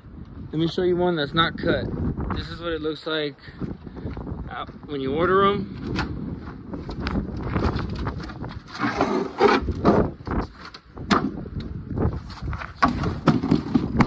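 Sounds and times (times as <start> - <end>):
wind buffeting microphone: 0.0 - 14.0
knocks and scrapes of car fender: 7.5 - 11.4, 12.2 - 14.0.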